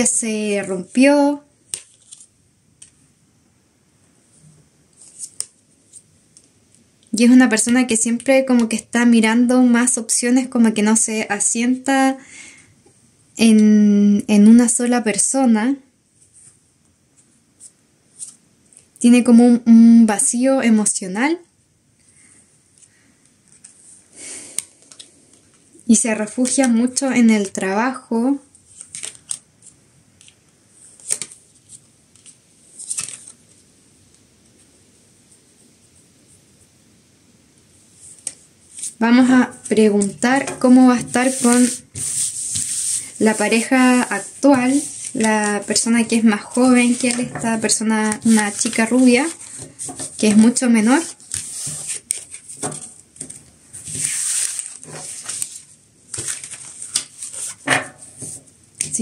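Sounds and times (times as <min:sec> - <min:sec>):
cards slapping and swishing: 0:39.6 - 0:57.6.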